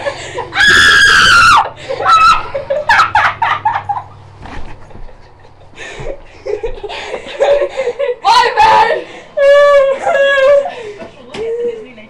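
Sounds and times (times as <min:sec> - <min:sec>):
laughter: 0:01.7 - 0:08.2, 0:09.8 - 0:11.2.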